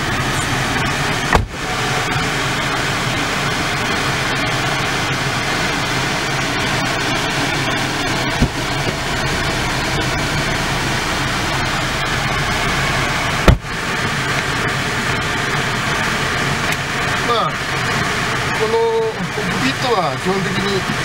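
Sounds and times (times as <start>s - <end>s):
dull thump: 1.3s - 1.6s, 8.3s - 9.1s, 13.4s - 13.7s.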